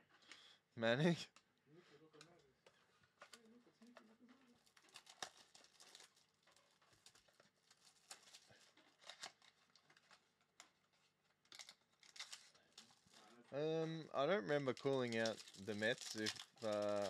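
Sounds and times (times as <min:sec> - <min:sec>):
plastic wrap crinkling and tearing: 0:03.1 - 0:13.6, 0:14.5 - 0:17.0.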